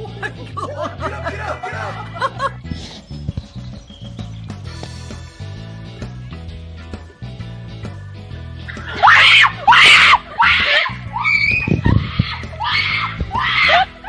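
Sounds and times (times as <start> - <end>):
background music: 0.0 - 14.0
woman screaming: 8.9 - 14.0.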